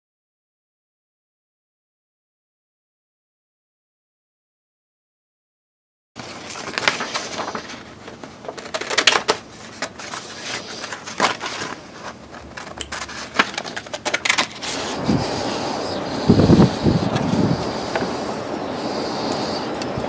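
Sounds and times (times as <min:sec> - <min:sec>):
scissors snipping paper: 0:06.2 - 0:15.0
paper rustling: 0:06.2 - 0:20.0.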